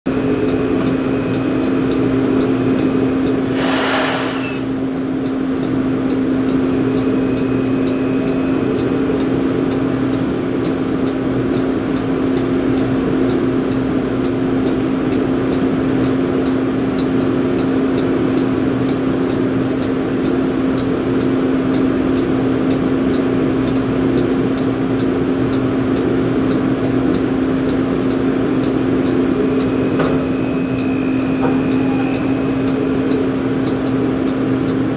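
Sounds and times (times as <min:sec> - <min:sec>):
engine and hydraulic drone: 0:00.1 - 0:34.9
faint regular ticking: 0:00.4 - 0:03.4, 0:05.0 - 0:31.8, 0:32.5 - 0:34.9
short hiss: 0:03.5 - 0:04.7.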